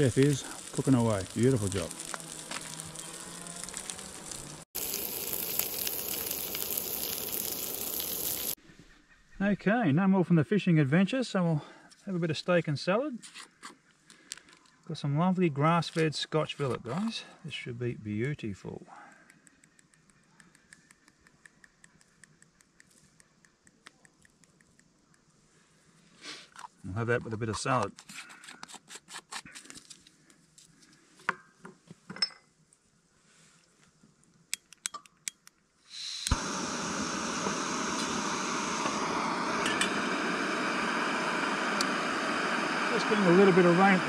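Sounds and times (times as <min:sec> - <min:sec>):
fish sizzling in a pan: 0:00.0 - 0:08.6, 0:35.9 - 0:44.0.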